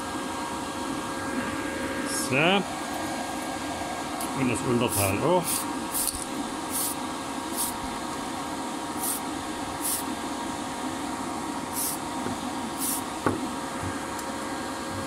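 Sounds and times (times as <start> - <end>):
fan humming: 0.0 - 15.0
aerosol can spraying: 5.4 - 7.8, 9.0 - 9.2, 9.8 - 10.1, 11.7 - 12.0, 12.8 - 13.1.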